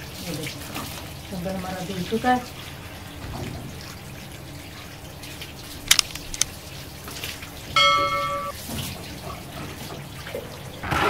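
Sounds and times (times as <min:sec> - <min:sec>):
bell-like notification chime: 0:07.8 - 0:08.6.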